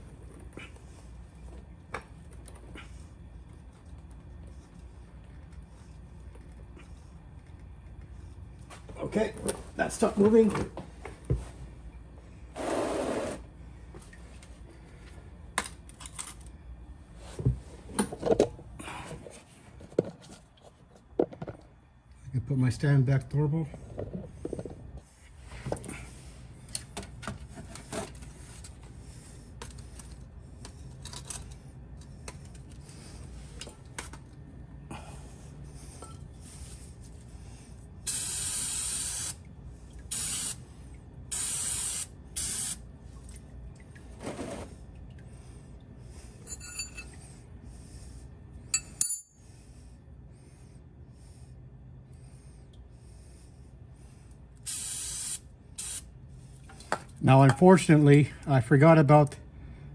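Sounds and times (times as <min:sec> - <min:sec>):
aerosol spray hissing: 0:38.1 - 0:39.4, 0:40.1 - 0:40.6, 0:41.3 - 0:42.8, 0:54.7 - 0:56.0.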